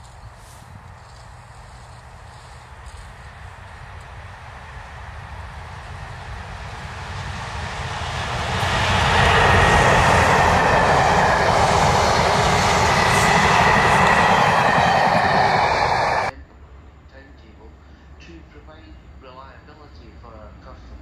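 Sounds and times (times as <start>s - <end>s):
diesel train passing: 0.0s - 16.3s.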